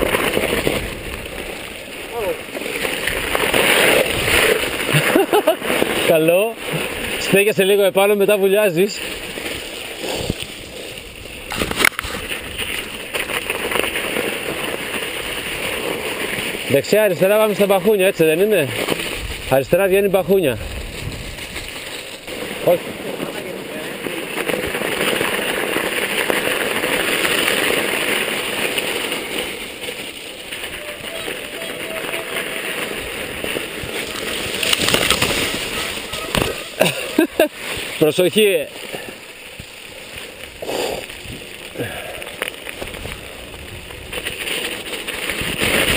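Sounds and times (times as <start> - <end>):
wind noise: 0.0 - 7.3, 18.7 - 23.6, 39.0 - 45.9
bike tyre and rattle noise: 0.0 - 45.9.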